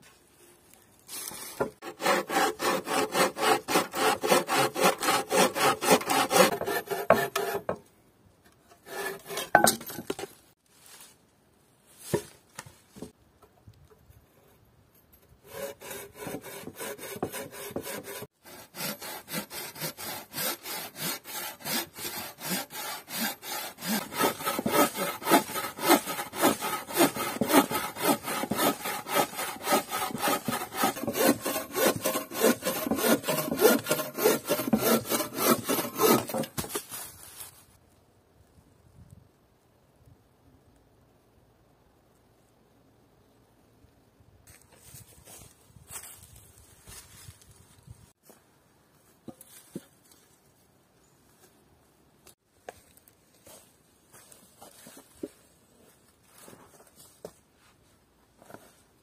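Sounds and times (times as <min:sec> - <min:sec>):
bow saw cutting a log: 0:01.6 - 0:07.8, 0:08.8 - 0:10.2, 0:15.4 - 0:36.8.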